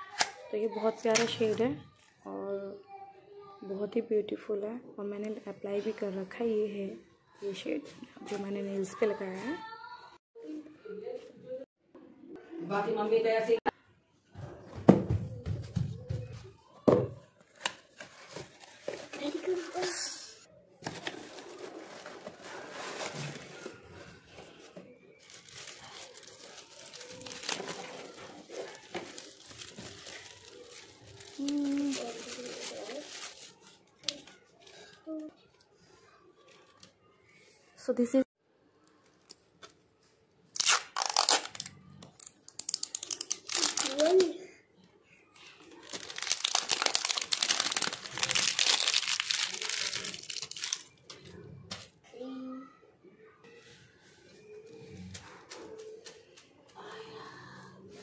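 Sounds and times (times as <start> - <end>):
paper packing wrap crinkling: 20.8 - 34.2, 40.6 - 44.3, 45.7 - 51.0.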